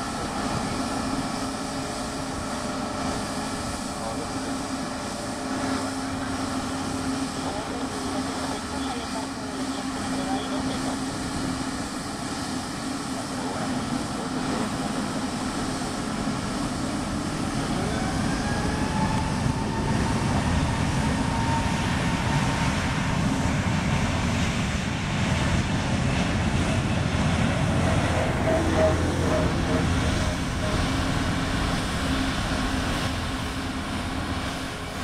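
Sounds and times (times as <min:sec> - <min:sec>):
jet engine roar: 0:00.0 - 0:35.0
faint rising whine: 0:27.6 - 0:32.8.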